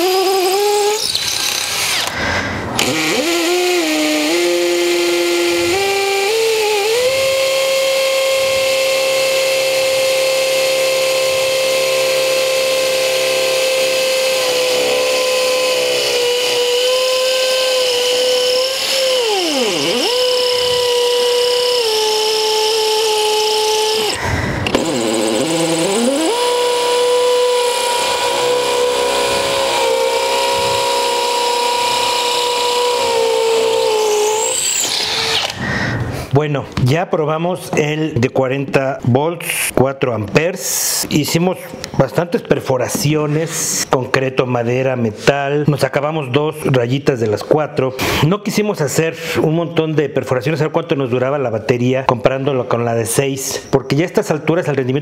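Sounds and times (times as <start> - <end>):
cordless hammer drill whining: 0.0 - 36.1.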